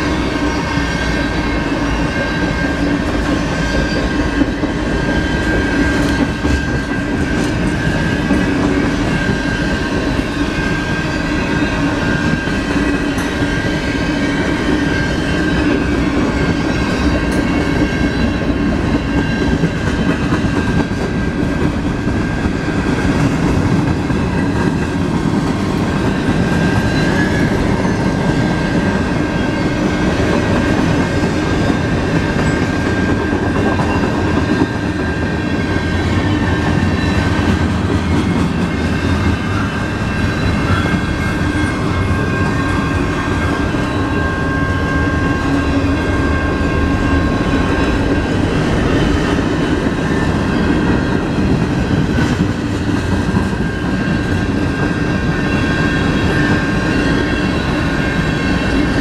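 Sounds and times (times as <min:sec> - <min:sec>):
train wheels rumbling over rails: 0:00.0 - 0:59.0
steady high-pitched tone: 0:22.1 - 0:51.9.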